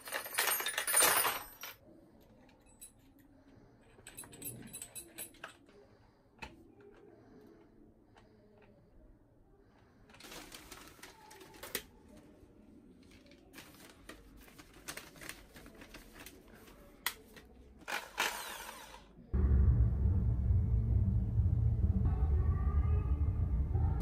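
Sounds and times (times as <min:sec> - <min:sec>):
paper and tape rustling: 0:10.1 - 0:18.9
loud low rumble: 0:19.4 - 0:24.0.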